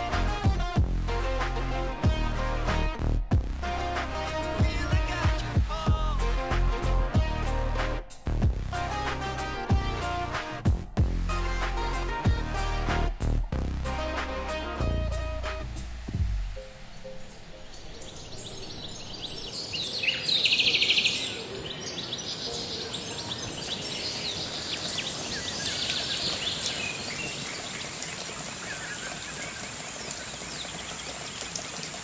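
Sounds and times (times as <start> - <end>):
steady high hiss: 14.8 - 27.9
small birds chirping: 16.9 - 32.0.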